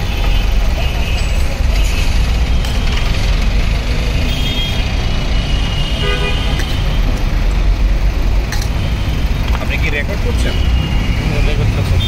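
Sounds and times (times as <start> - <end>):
road traffic rumble: 0.0 - 12.0
vehicle horn tooting: 5.7 - 6.9.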